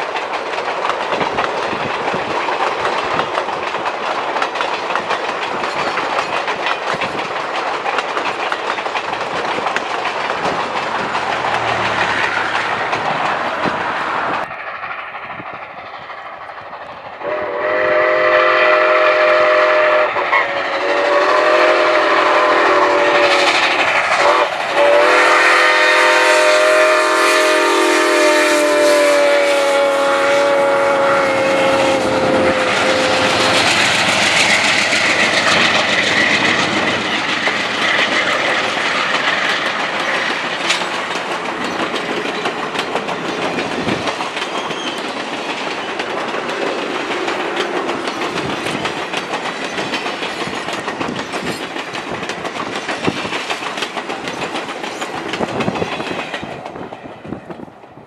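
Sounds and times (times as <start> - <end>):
train wheels clicking over rail joints: 0.0 - 58.0
steam locomotive whistle: 17.2 - 34.4.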